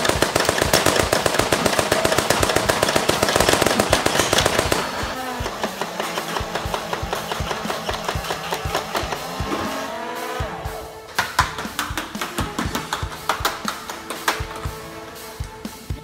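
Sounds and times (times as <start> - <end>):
toy blaster firing clicks: 0.0 - 9.4.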